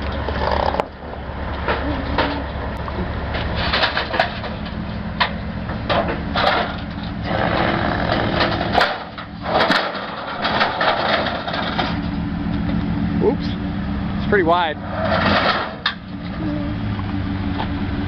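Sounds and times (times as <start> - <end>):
truck engine running: 0.0 - 18.0
steel ramps clanking: 1.6 - 12.8, 14.8 - 16.3.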